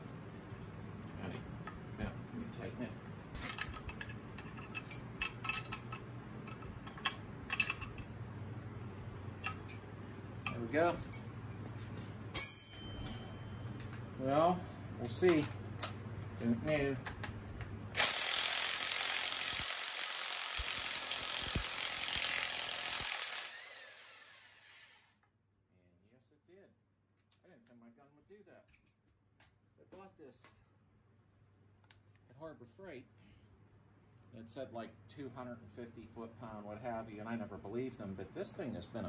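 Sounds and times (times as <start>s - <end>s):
metal tools clinking: 3.4s - 8.2s, 9.4s - 13.9s
impact wrench hammering: 18.0s - 23.6s.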